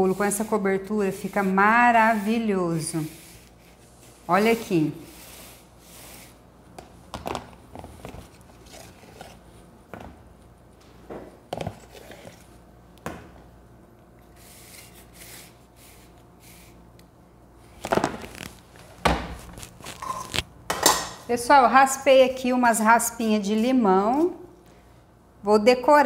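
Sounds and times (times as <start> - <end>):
spatula scraping a container: 0.0 - 6.4.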